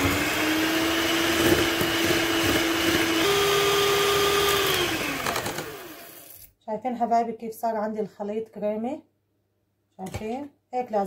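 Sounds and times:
electric hand mixer whining: 0:00.0 - 0:06.5.

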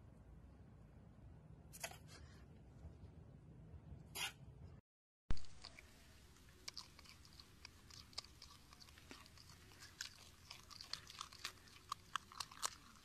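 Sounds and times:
animal crunching carrot: 0:05.4 - 0:13.0.

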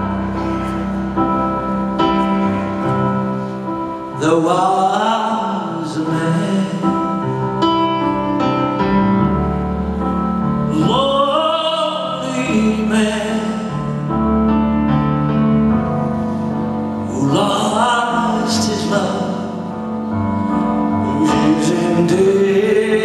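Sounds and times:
live band playing slow ballad: 0:00.0 - 0:23.0
sustained keyboard chords: 0:00.0 - 0:23.0
man singing: 0:04.1 - 0:07.6, 0:10.7 - 0:14.2, 0:17.0 - 0:23.0.

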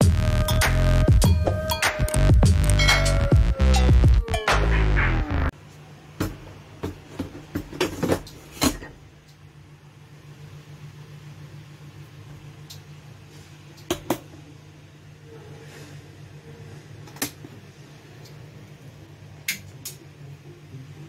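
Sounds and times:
rice cooker humming: 0:08.9 - 0:21.0.

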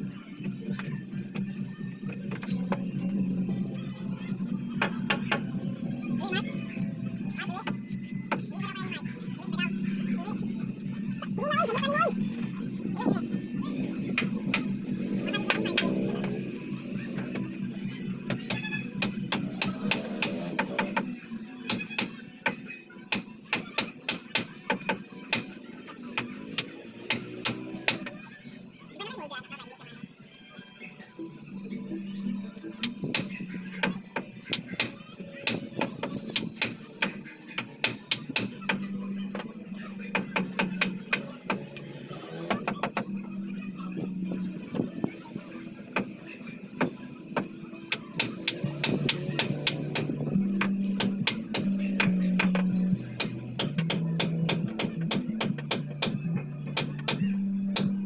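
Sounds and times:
hammer striking wooden frame: 0:18.3 - 0:21.1, 0:21.7 - 0:25.6, 0:26.2 - 0:28.2, 0:32.8 - 0:39.5, 0:40.1 - 0:43.1, 0:48.2 - 0:58.0.

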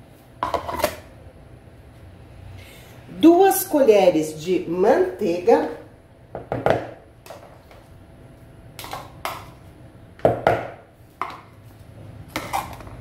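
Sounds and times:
bowls handled on counter: 0:00.4 - 0:01.0, 0:10.2 - 0:11.6.

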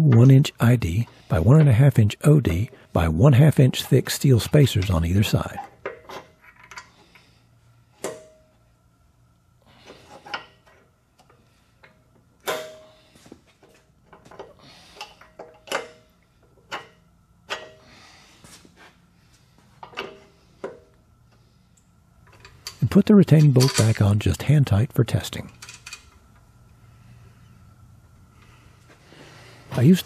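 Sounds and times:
metal parts clinking: 0:23.4 - 0:24.0, 0:25.5 - 0:26.2.

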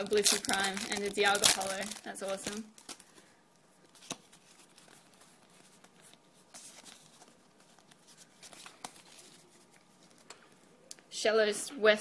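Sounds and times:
trading cards rustling and sliding: 0:03.9 - 0:10.6.

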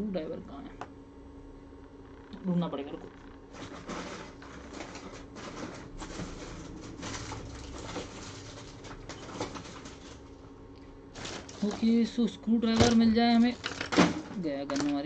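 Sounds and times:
objects rustling and clattering: 0:03.4 - 0:15.0.

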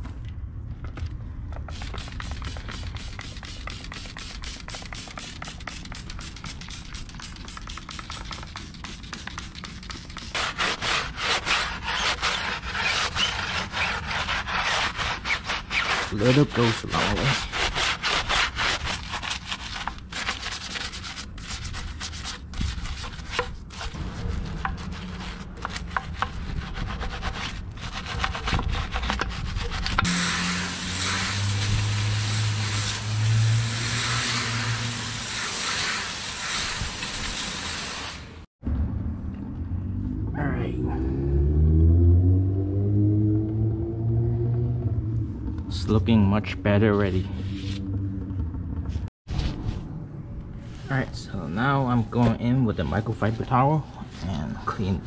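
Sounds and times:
water spray hissing: 0:01.7 - 0:10.4, 0:30.1 - 0:38.4
brush scrubbing car wheel: 0:01.7 - 0:38.1
low motor hum: 0:38.6 - 0:49.1.

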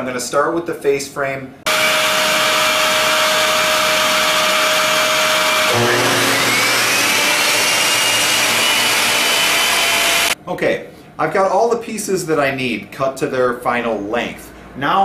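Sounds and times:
dust vacuum running: 0:01.7 - 0:10.4
miter saw cutting wood: 0:01.7 - 0:10.4.

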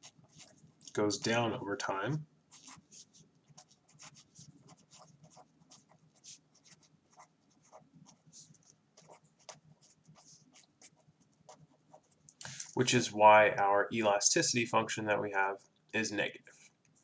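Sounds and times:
pen scratching on paper: 0:00.0 - 0:00.6, 0:02.5 - 0:12.2.

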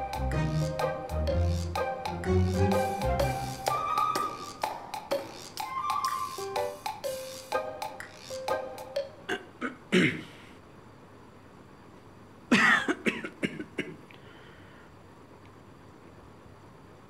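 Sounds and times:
background music: 0:00.0 - 0:09.2
man coughing: 0:09.3 - 0:10.4, 0:12.5 - 0:14.0.

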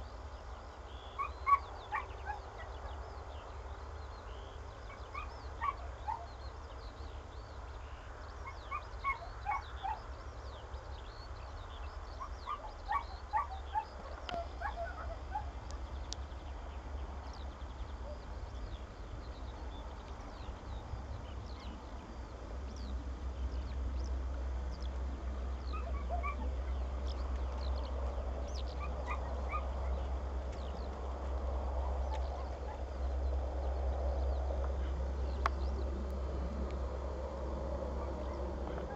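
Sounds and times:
steady low rumble: 0:09.8 - 0:38.9.

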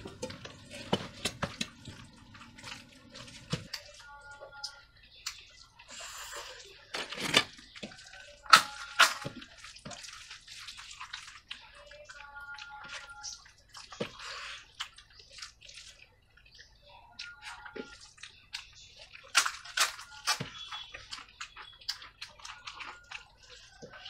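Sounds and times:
eating with lip smacks: 0:10.8 - 0:19.4, 0:20.1 - 0:24.0.

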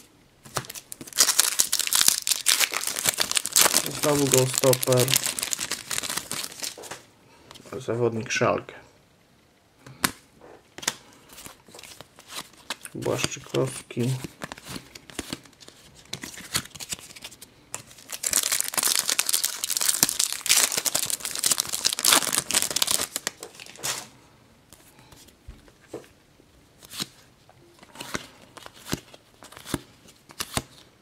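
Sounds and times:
card packet tearing and crinkling: 0:00.5 - 0:07.0, 0:14.0 - 0:24.0.

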